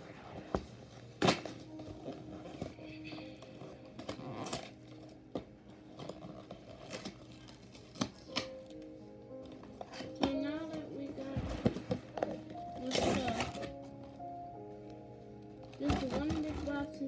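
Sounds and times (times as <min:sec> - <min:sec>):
background music: 0:00.0 - 0:17.0.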